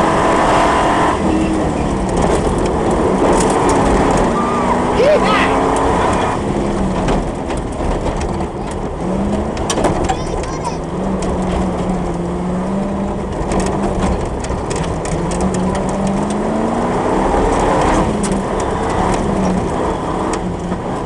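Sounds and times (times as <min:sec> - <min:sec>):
vehicle body knocks and rattles: 0:01.2 - 0:04.4, 0:05.8 - 0:16.4.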